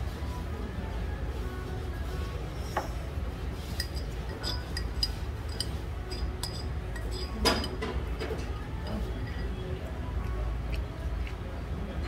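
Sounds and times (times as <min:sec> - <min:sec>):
spoon clinking against stoneware pot: 0:03.7 - 0:07.9.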